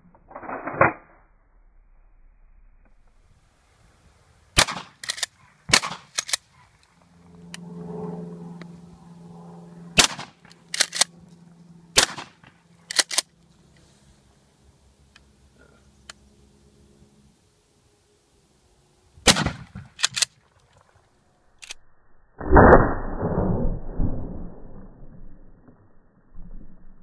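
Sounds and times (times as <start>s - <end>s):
shotgun blasts: 4.6s - 6.4s, 10.0s - 11.0s, 11.9s - 12.6s, 19.2s - 20.2s
shotgun pump racking: 10.5s - 11.1s, 12.8s - 13.3s, 20.0s - 20.3s.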